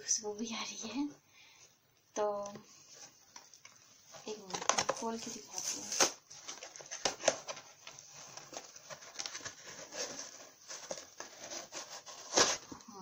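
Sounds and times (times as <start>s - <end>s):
packaging rustling and crinkling: 2.8s - 13.0s.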